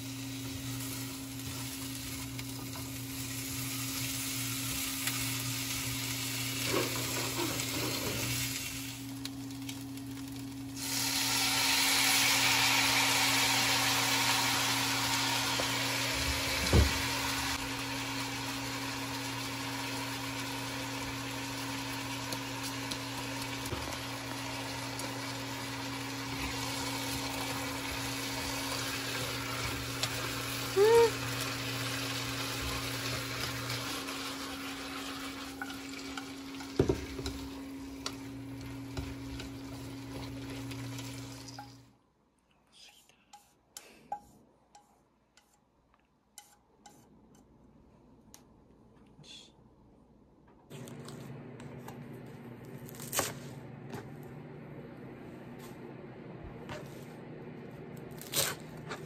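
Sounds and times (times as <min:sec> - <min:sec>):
range hood fan hum: 0:00.0 - 0:41.9, 0:50.5 - 0:59.0
vegetables sizzling in a frying pan: 0:00.0 - 0:41.9.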